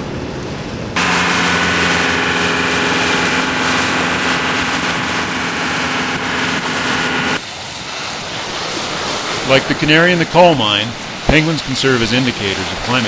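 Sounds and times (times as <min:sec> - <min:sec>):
boat motor running: 0:00.6 - 0:07.4
rushing noise: 0:01.0 - 0:13.0.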